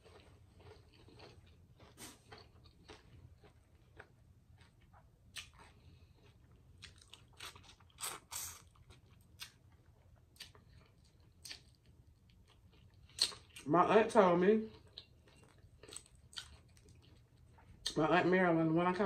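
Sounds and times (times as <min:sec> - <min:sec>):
biting food: 0:00.0 - 0:09.7
mouth clicks and smacks eating: 0:11.4 - 0:13.6.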